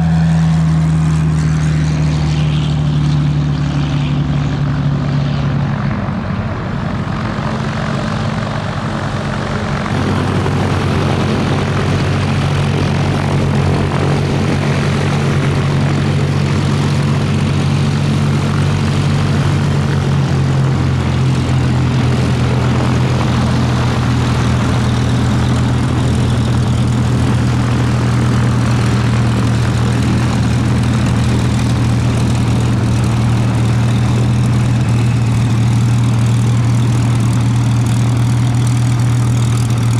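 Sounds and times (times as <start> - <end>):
propeller engine droning: 0.0 - 39.9.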